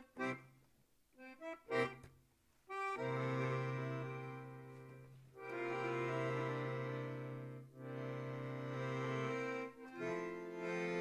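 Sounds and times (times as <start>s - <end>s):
long held instrumental chords: 2.7s - 11.0s.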